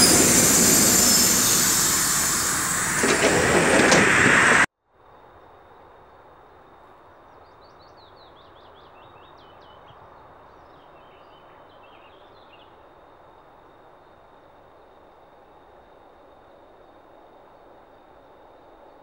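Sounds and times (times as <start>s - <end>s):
steady hiss: 0.0s - 4.7s.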